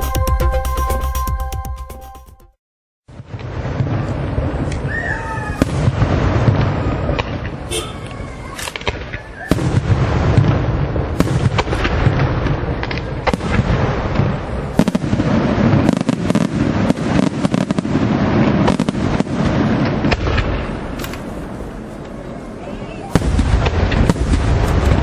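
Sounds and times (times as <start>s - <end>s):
firework bangs: 3.1s - 25.0s
low rumble of explosions: 3.1s - 25.0s.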